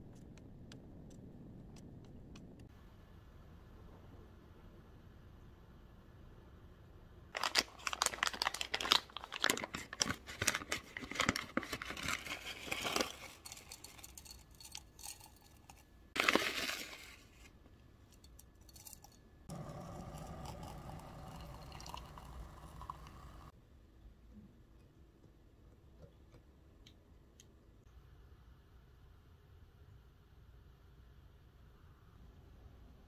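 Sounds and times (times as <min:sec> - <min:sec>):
foil pouch crinkling: 0:07.4 - 0:15.3, 0:16.2 - 0:17.4
dry tea rustling: 0:07.4 - 0:17.6, 0:18.2 - 0:23.0
water pouring into glass: 0:19.6 - 0:23.5.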